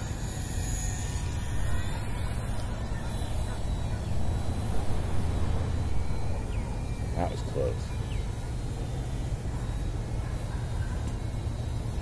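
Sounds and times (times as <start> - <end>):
model plane electric motor whine: 0.0 - 12.0
wind buffeting microphone: 1.2 - 7.3.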